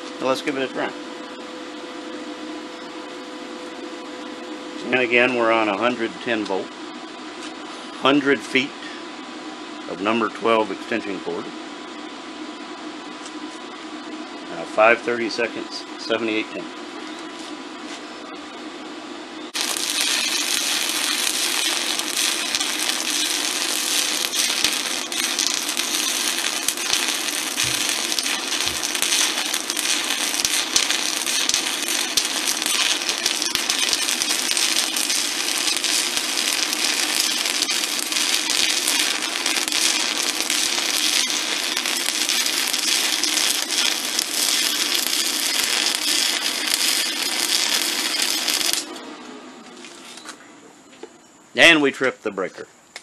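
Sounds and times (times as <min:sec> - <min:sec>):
welding arc crackling: 0:19.5 - 0:50.1.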